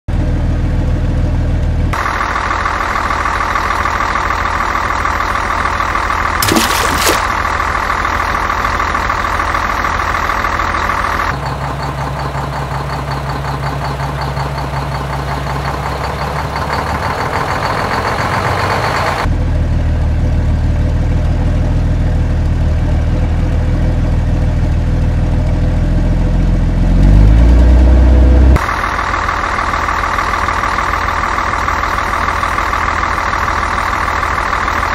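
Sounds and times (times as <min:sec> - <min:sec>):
truck engine running and idling: 0:00.1 - 0:06.4, 0:07.1 - 0:34.9
engine revving: 0:26.6 - 0:28.6.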